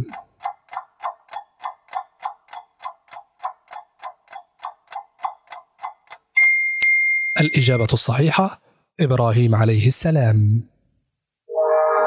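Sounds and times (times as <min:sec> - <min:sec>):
clock ticking: 0:00.0 - 0:06.4.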